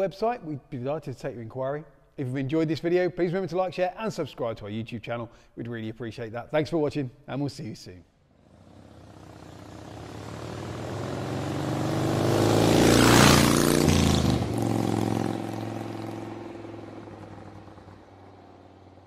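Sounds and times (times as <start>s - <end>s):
vehicle driving past: 8.4s - 19.0s.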